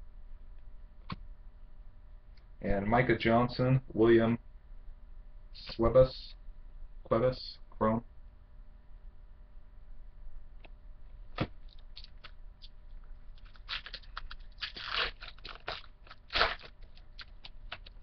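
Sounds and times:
pack wrapper crinkling: 11.4s - 12.4s, 13.3s - 18.0s.

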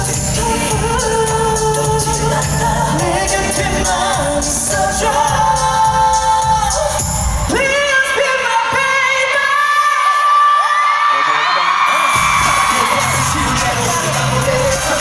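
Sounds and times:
man singing: 0.0s - 10.8s, 11.8s - 15.0s
pop backing track with heavy beat: 0.0s - 15.0s
crowd screaming: 9.6s - 15.0s.

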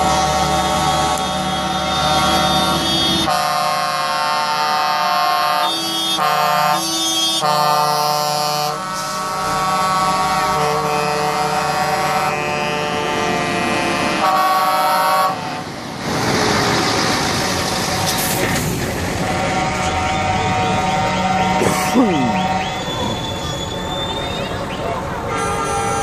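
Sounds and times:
truck air horns: 0.0s - 15.7s, 19.2s - 23.5s, 25.3s - 26.0s
diesel trucks rumbling past: 0.0s - 26.0s.

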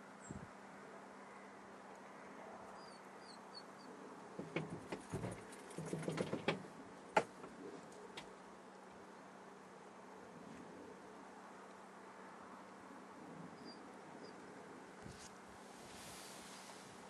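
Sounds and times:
faint bird chirps: 2.7s - 4.0s, 13.5s - 14.5s.

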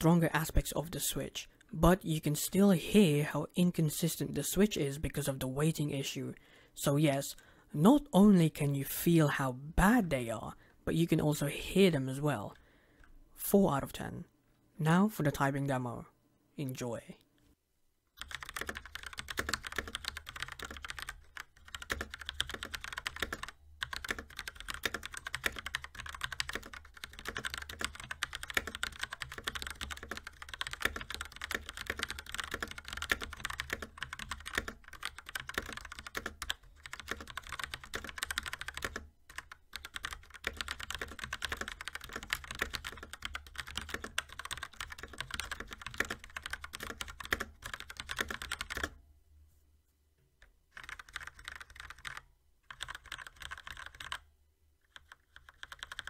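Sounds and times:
fast mechanical keyboard typing: 18.2s - 49.0s, 50.7s - 54.2s, 54.9s - 56.0s.

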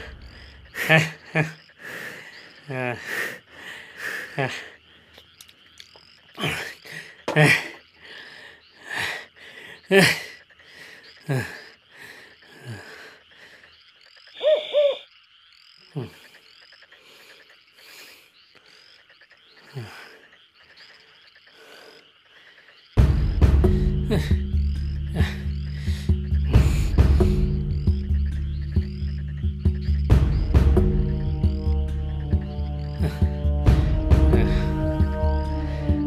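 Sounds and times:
chorus of insects and frogs: 0.0s - 36.0s
double hoot: 14.4s - 15.1s
loud music: 30.0s - 36.0s.

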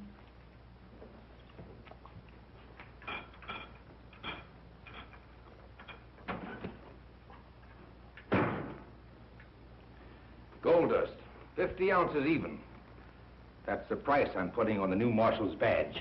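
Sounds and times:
steady hum: 0.0s - 16.0s
glass and bottle clinking: 3.0s - 5.2s.

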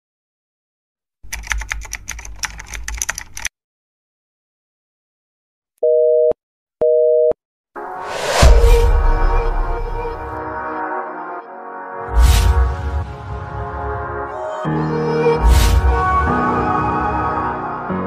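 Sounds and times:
quick run of clicks: 1.2s - 3.5s
telephone busy signal beeps: 5.8s - 7.4s
music: 7.8s - 18.0s
swoosh: 7.9s - 10.4s
deep boom: 8.2s - 10.4s.

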